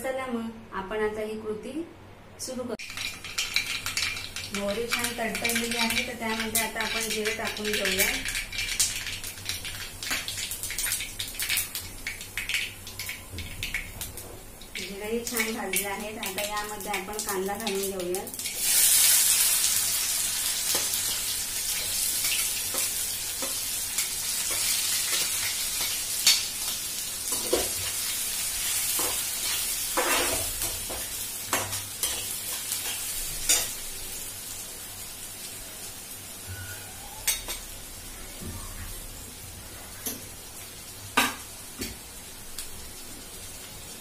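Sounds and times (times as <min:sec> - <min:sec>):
onions sizzling in oil: 0:02.8 - 0:44.0.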